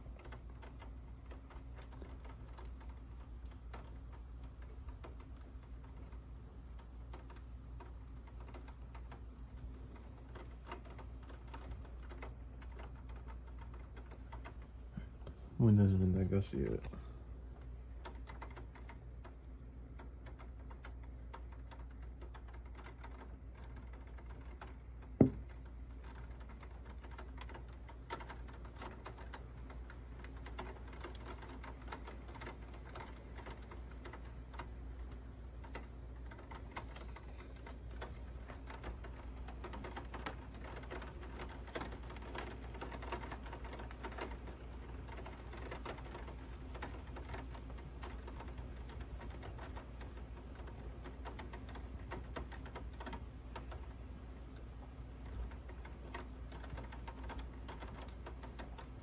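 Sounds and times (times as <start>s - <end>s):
raindrops tapping on surface: 0.0s - 59.0s.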